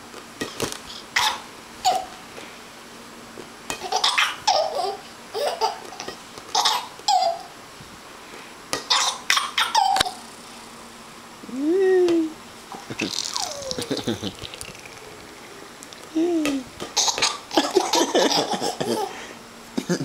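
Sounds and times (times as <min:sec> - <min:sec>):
baby giggling: 0:03.8 - 0:07.5, 0:08.9 - 0:10.2, 0:12.9 - 0:15.1, 0:16.2 - 0:19.2.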